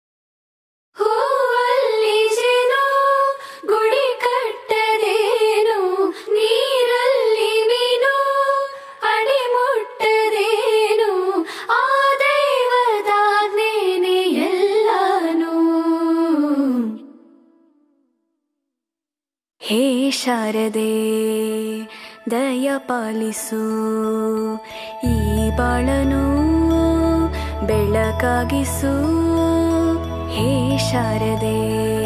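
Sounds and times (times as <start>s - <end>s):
high solo voice singing: 25.0s - 32.0s.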